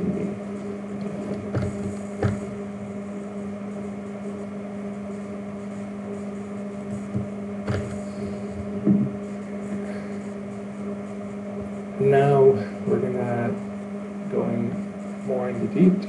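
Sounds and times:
low electrical hum: 0.0 - 16.0
soft thump: 8.8 - 9.1.

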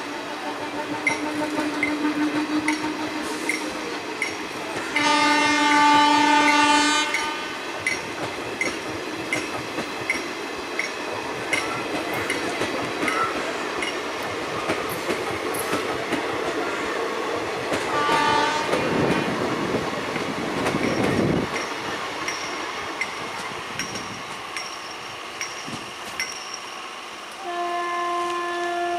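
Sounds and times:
locomotive horn: 0.2 - 3.9, 4.9 - 7.6, 17.9 - 19.0, 27.4 - 28.9
train wheels clickety-clack: 0.5 - 27.4.

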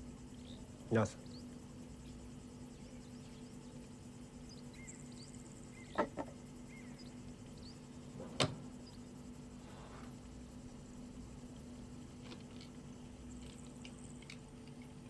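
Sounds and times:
steady low hum: 0.0 - 15.0
light knocks on wooden workbench: 5.9 - 6.4.

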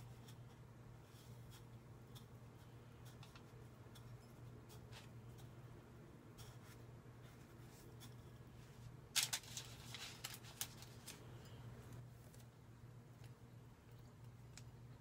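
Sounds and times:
parchment paper crinkling: 6.4 - 12.6.

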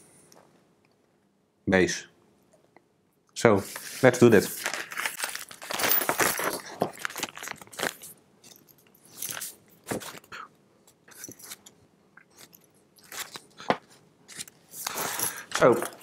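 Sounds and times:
paper rustling: 3.6 - 8.2
plastic bag crinkling: 4.0 - 8.2.

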